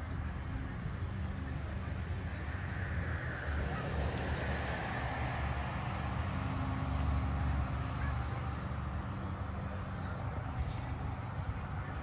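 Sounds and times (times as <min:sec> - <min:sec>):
steady low rumble: 0:00.0 - 0:12.0
car passing by: 0:01.2 - 0:10.3.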